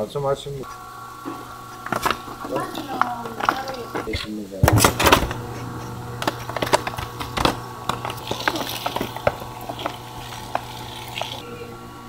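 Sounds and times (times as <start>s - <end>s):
slicing machine motor hum: 0.6s - 12.0s
styrofoam tray being handled: 1.8s - 11.4s.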